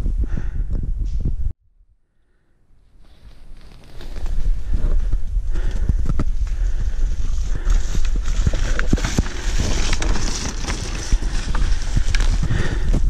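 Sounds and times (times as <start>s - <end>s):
wind rumble on microphone: 0.0s - 1.6s, 4.0s - 13.0s
knocks and thuds on dirt trail: 3.7s - 13.0s.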